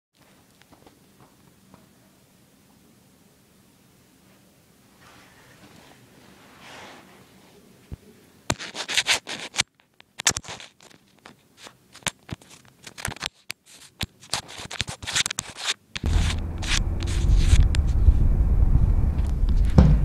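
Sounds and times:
fingers rubbing over microphone: 13.7s - 18.0s
loud low rumble: 16.0s - 20.0s.

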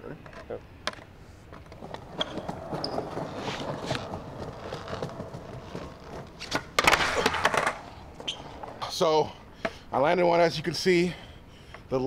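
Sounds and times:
skateboard wheels rolling on paving: 0.9s - 9.3s
skateboard slapping on ground: 1.7s - 8.7s.

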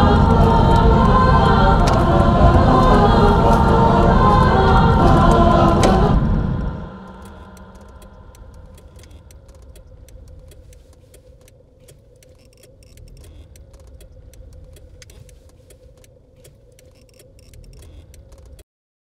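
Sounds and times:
small car engine idling: 0.0s - 18.6s
irregular clicks: 6.6s - 18.6s.

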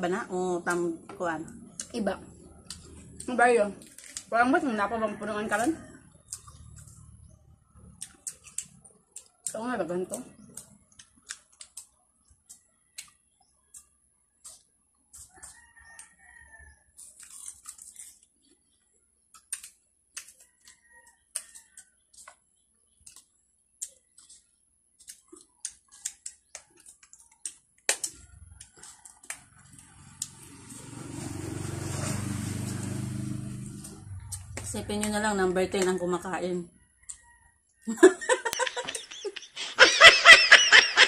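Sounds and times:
crisp crunches of chewing apples: 1.5s - 4.3s, 5.6s - 9.6s, 10.3s - 33.0s.

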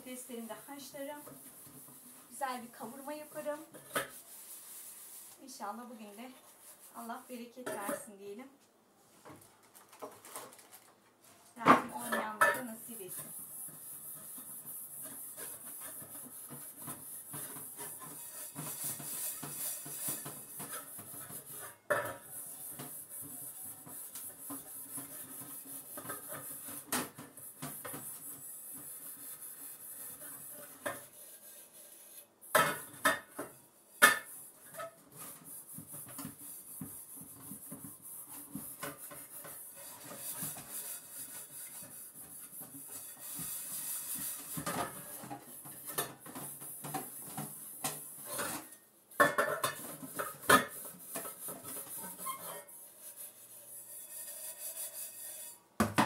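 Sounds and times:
sponge scrubbing metal pots: 0.0s - 8.1s, 11.8s - 55.6s
pots clanking: 42.5s - 52.7s.

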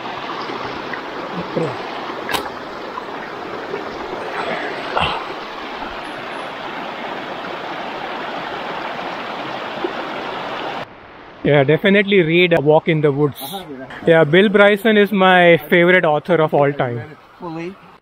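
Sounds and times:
creek rushing over rocks: 0.0s - 11.4s.

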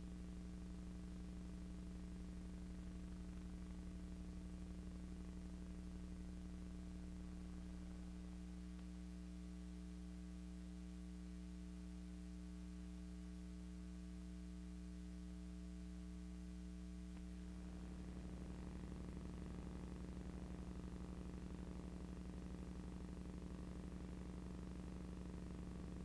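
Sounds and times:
electrical mains hum: 0.0s - 26.0s.

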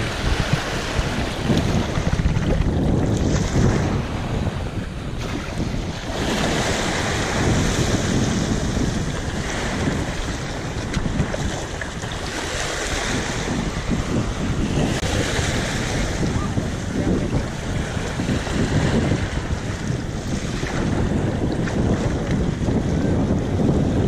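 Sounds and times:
small waves washing on shore: 0.0s - 24.0s
wind rumbling on microphone: 0.0s - 24.0s.

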